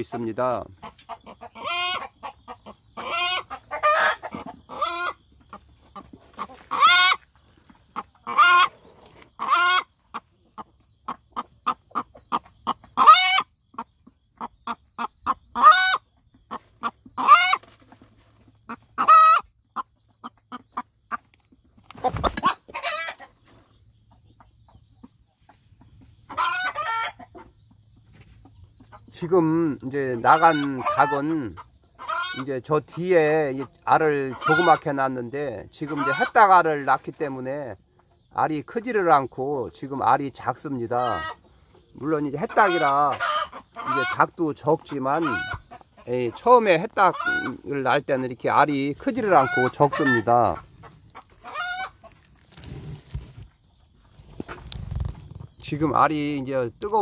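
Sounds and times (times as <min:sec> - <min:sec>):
hen cackling: 0:00.0 - 0:17.7, 0:18.7 - 0:21.3, 0:21.9 - 0:23.4, 0:26.2 - 0:27.5, 0:28.8 - 0:36.9, 0:39.9 - 0:52.4.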